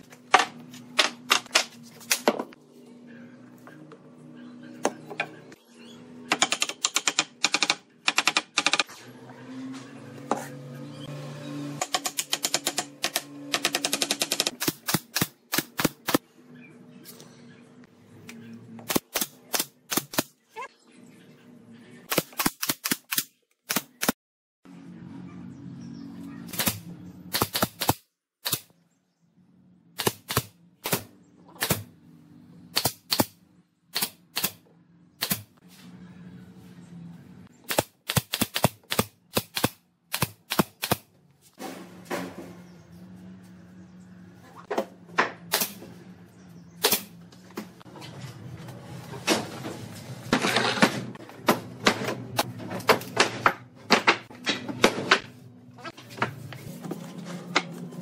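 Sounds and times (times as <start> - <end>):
tools driving fasteners into wood: 6.3 - 8.9, 11.8 - 16.2.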